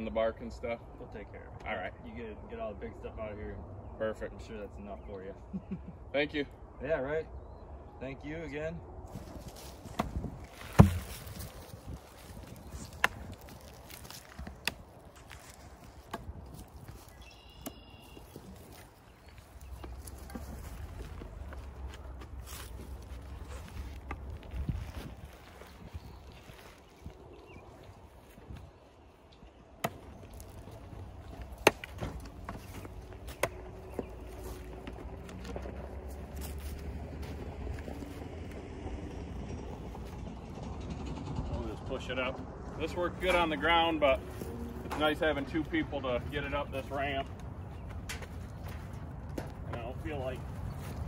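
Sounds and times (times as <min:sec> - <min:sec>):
steel point chopping into wood: 0:10.0 - 0:11.4.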